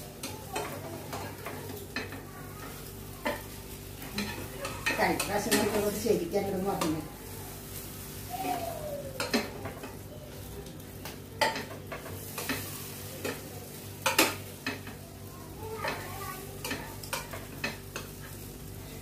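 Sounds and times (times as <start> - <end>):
light frying sizzle: 0.0 - 19.0
spatula scraping a pan: 0.2 - 8.6.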